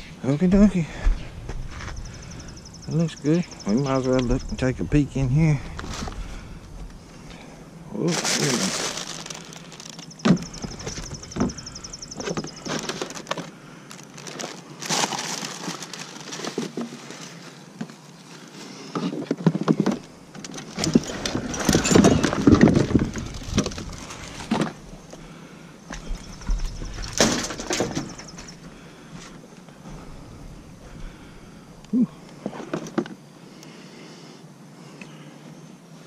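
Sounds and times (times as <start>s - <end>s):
junk being rummaged by hand: 5.6s - 6.5s, 8.0s - 18.0s, 19.0s - 25.2s, 25.9s - 30.0s.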